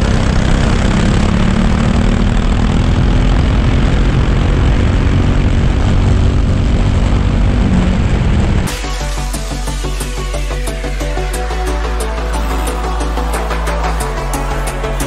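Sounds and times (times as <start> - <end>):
small kart engine running: 0.0 - 8.7, 9.6 - 15.0
wind rush: 2.2 - 8.7.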